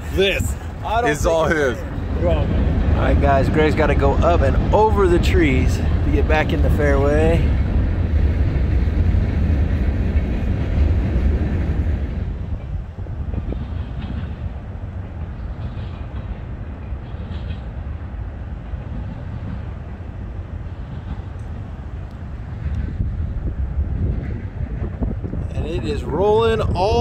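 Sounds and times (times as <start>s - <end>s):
wind buffeting microphone: 0.0s - 27.0s.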